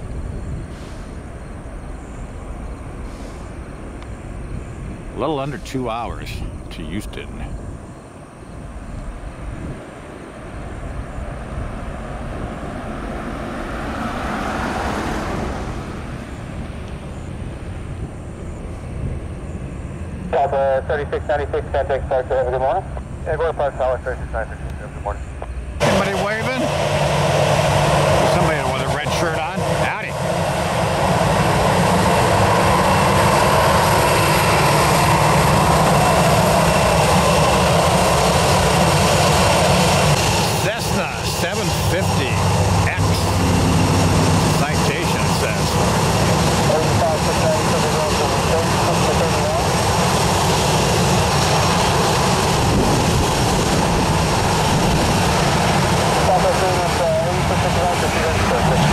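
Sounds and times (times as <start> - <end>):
jet airliner passing: 0.0 - 58.9
faint high whine: 15.9 - 26.7
low rumble: 22.8 - 58.9.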